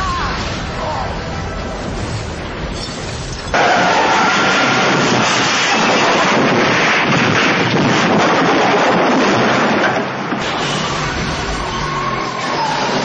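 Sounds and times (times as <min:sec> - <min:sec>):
car crash crunching and scraping: 0:03.5 - 0:11.5.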